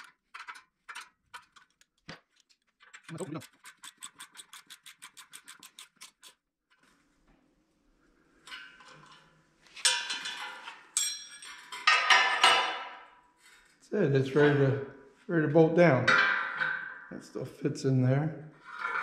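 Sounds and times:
metal tools clattering: 8.4 - 13.0.

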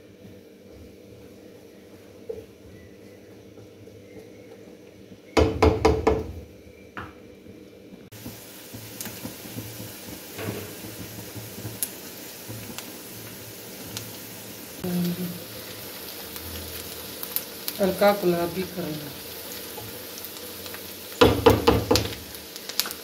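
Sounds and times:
spatula knocking on pan: 5.4 - 6.4, 21.2 - 22.2
onions sizzling in oil: 8.1 - 23.0.

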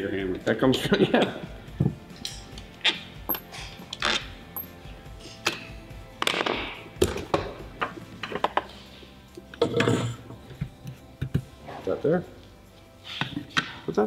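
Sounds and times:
background music: 0.0 - 14.0
clicks and clinks of parts handled: 3.3 - 4.7.

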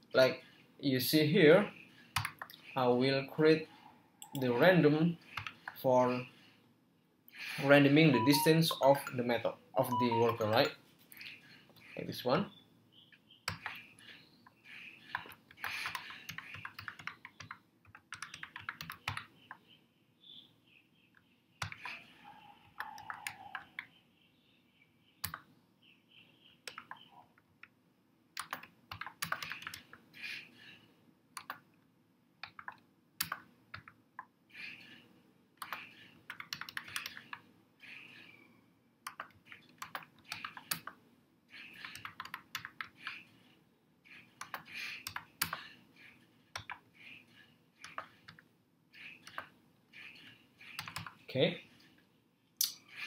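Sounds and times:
computer keyboard typing: 2.1 - 2.6, 5.3 - 5.8, 13.5 - 13.9, 15.0 - 19.6, 21.6 - 23.9, 26.6 - 27.1, 28.4 - 30.0, 31.4 - 31.6, 32.4 - 34.0, 35.6 - 38.2, 39.0 - 43.3, 44.1 - 48.4, 49.0 - 51.2.

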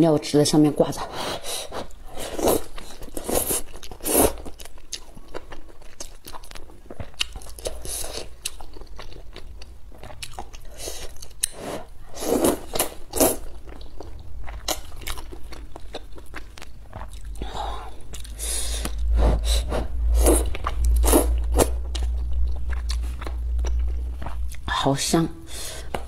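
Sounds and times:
chewing: 1.8 - 19.1, 20.2 - 24.7
slurping noodles: 10.7 - 13.5.

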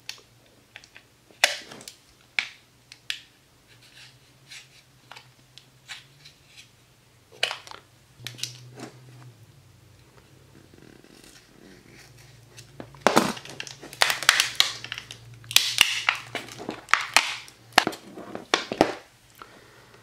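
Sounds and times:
plastic crackling: 11.2 - 19.1
plastic wrap snapping and clicking: 12.6 - 19.0.

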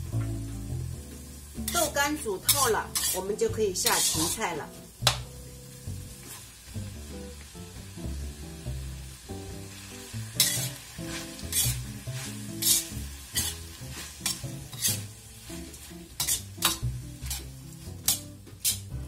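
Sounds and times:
background music: 0.0 - 19.0
food sizzling in wok: 0.0 - 19.0
spatula scraping wok: 1.3 - 5.1, 6.1 - 6.7, 9.7 - 19.0.

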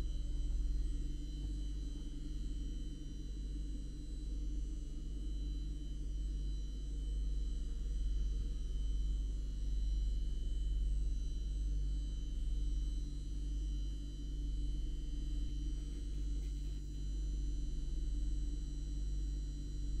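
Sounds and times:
deep electrical hum: 0.0 - 20.0.

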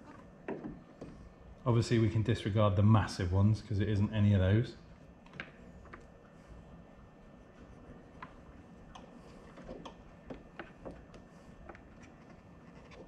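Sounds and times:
knife scraping wire insulation: 9.0 - 13.0.

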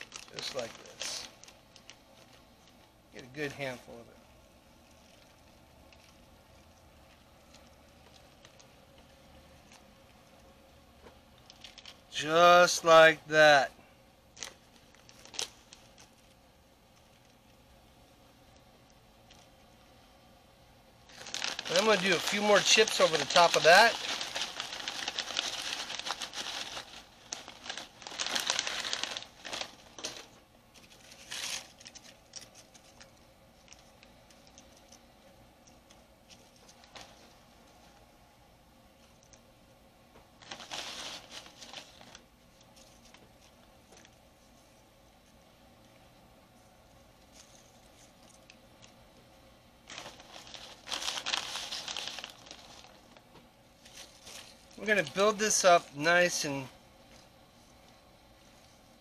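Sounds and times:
chip bag rustling: 0.0 - 4.0, 14.3 - 17.4, 21.1 - 35.0, 35.6 - 38.0, 40.4 - 44.2, 49.8 - 56.7.

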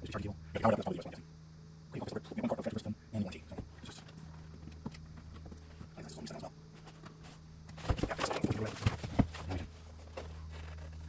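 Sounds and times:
cardboard scraping and rustling: 6.7 - 11.0.

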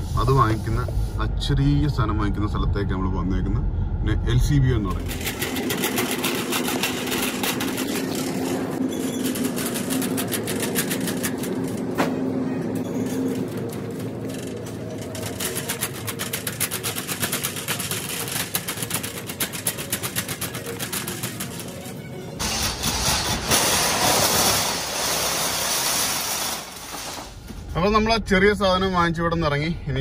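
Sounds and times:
shopping cart rattling on tiles: 5.0 - 27.4.

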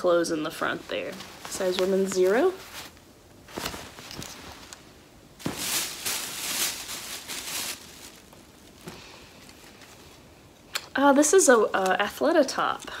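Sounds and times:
plastic bag rustling: 0.5 - 10.3.

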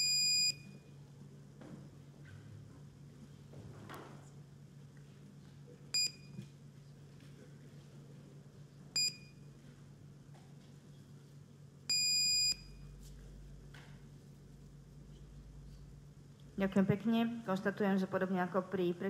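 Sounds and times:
low steady hum: 0.0 - 19.0
longer beep: 11.9 - 12.9.

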